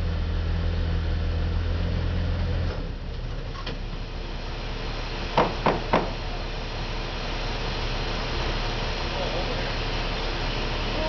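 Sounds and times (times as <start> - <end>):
wooden board knocking on hull: 5.4 - 6.2.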